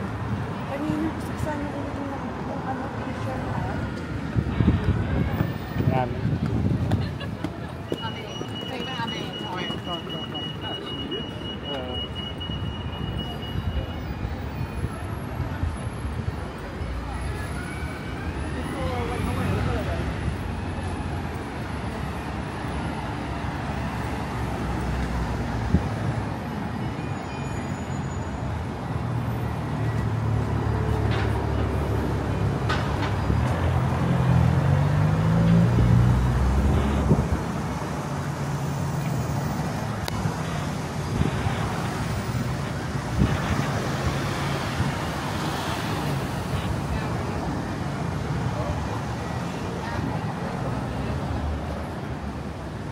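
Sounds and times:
hum of passing traffic: 0:00.0 - 0:52.9
heavy vehicle engine: 0:27.1 - 0:52.9.

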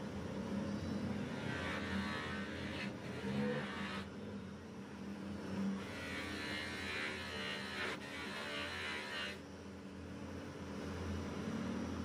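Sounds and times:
blade grinding on wheel: 0:01.1 - 0:04.1, 0:05.8 - 0:09.4.

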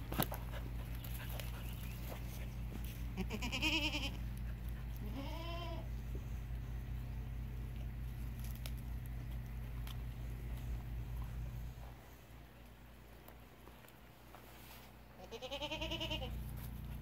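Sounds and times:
goat bleating: 0:03.1 - 0:05.9, 0:15.2 - 0:16.4.

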